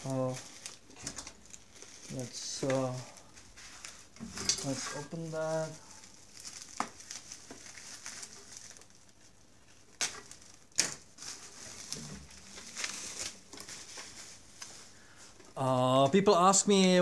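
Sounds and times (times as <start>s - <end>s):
bubble wrap crinkling: 0.0s - 15.7s.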